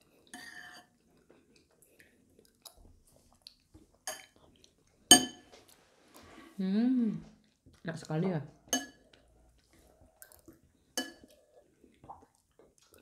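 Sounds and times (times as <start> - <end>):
metal spoon scraping a bowl: 0.4 - 0.9.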